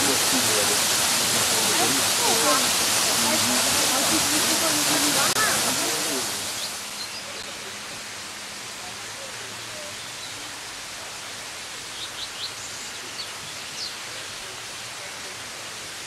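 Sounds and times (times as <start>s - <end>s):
rushing mountain water: 0.0s - 16.0s.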